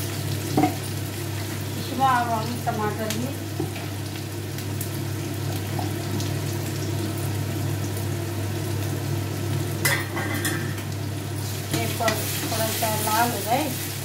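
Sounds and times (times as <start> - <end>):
onions sizzling in oil: 0.0 - 14.0.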